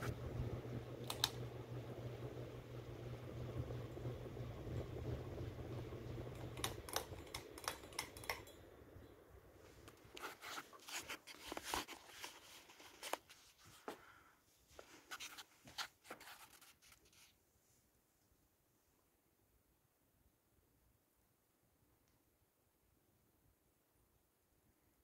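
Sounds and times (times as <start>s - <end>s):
ceiling fan motor humming: 0.0s - 14.2s.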